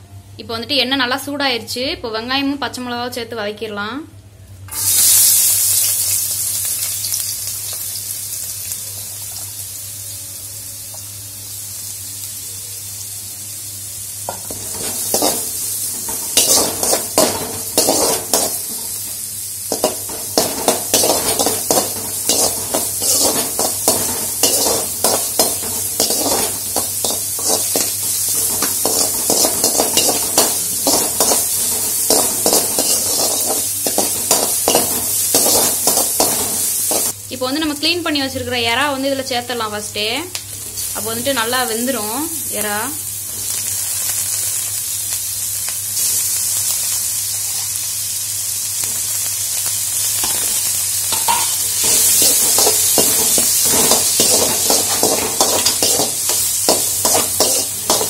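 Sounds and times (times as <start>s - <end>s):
onions sizzling in hot oil: 4.7s - 58.0s
metal spatula scraping a pan: 14.3s - 19.0s, 19.7s - 37.1s, 51.1s - 58.0s.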